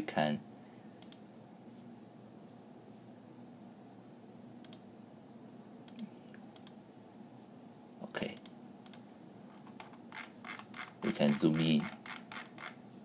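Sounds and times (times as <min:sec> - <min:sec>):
faint steady hum: 0:00.0 - 0:13.0
computer mouse clicks: 0:01.0 - 0:01.2, 0:04.6 - 0:04.8, 0:05.9 - 0:06.8, 0:08.4 - 0:09.0.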